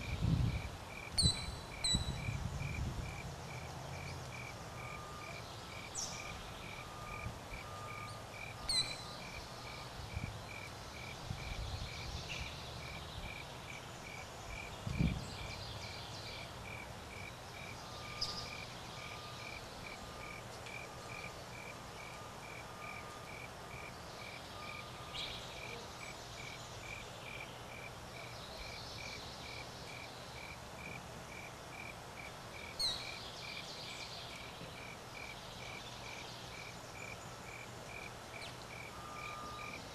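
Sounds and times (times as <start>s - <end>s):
cricket chirping: 0.0s - 15.6s, 16.4s - 33.7s, 34.3s - 39.9s
high downward-sweeping bird calls: 1.2s - 2.4s, 4.9s - 10.1s.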